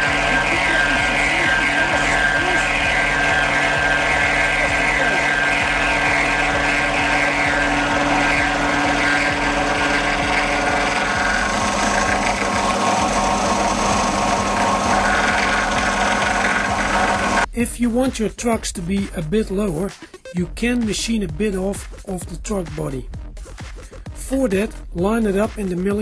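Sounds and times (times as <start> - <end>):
cutter milling metal: 0.0 - 17.5
milling machine hum: 0.0 - 17.5.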